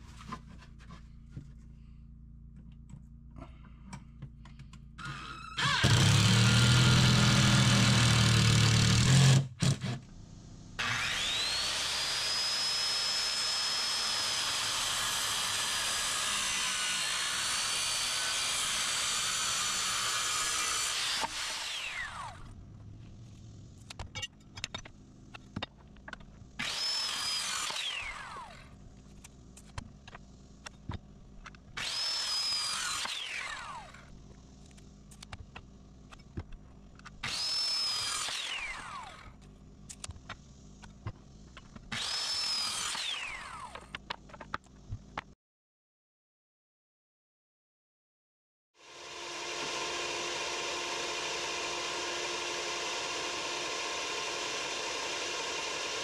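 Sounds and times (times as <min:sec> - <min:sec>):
circular saw cutting wood: 0:05.0 - 0:10.0, 0:10.8 - 0:22.6, 0:26.6 - 0:28.8, 0:31.8 - 0:34.1, 0:37.2 - 0:39.4, 0:41.9 - 0:44.0, 0:48.8 - 0:56.0
cordless drill driving screw: 0:05.0 - 0:10.0, 0:41.9 - 0:43.9.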